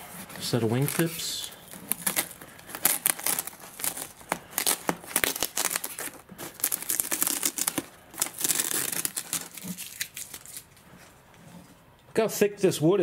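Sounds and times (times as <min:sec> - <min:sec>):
masking tape peeling: 0:00.0 - 0:10.9
foil wrap crackling: 0:00.2 - 0:10.8.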